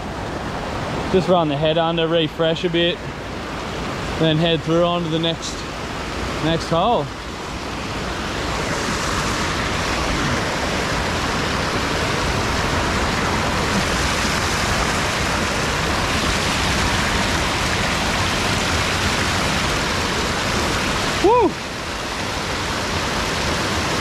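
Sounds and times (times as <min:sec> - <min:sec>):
river water rushing over weir: 0:00.0 - 0:24.0.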